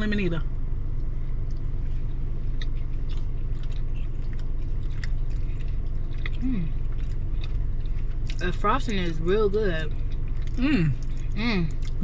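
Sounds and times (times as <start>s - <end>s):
steady low hum: 0.0s - 12.0s
people chewing: 1.4s - 12.0s.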